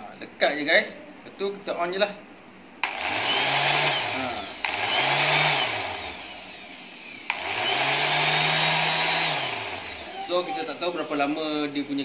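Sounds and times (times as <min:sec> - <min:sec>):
orbit sander whirring: 0:02.8 - 0:12.0.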